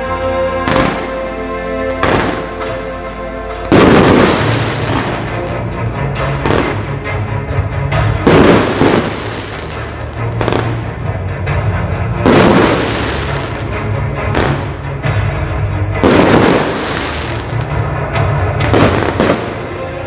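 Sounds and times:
music soundtrack: 0.0 - 20.0
firework shells booming: 0.7 - 1.2, 2.0 - 2.8, 3.7 - 5.6, 6.2 - 6.9, 8.2 - 10.9, 12.2 - 14.8, 16.0 - 18.0, 18.6 - 19.8
small firework bursts: 8.2 - 10.8, 16.0 - 17.8.

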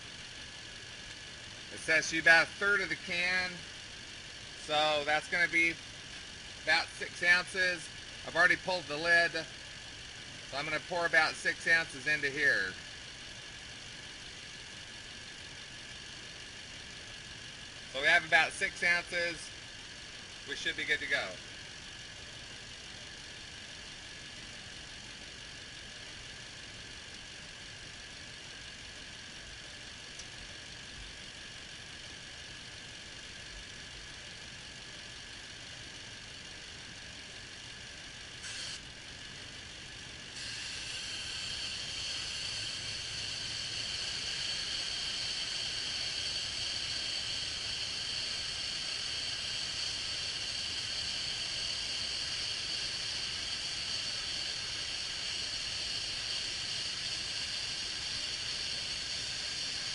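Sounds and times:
vacuum hose sucking air: 0.0 - 5.8, 6.5 - 16.0, 38.3 - 39.0, 39.8 - 59.9
engine idling: 0.0 - 59.9
steady hiss: 0.0 - 59.9.

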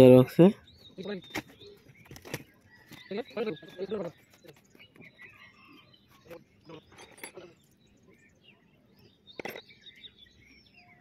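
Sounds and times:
birds chirping: 0.0 - 11.0
metal parts clinking: 6.8 - 7.6, 9.4 - 9.7.

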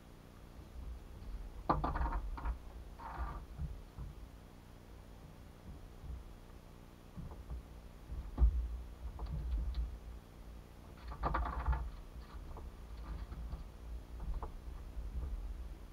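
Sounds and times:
low steady rumble: 0.0 - 15.9
scraping rustle: 0.8 - 4.2, 10.8 - 15.9
gear knocks and rustles: 0.8 - 4.4, 5.3 - 10.2, 10.8 - 15.9.

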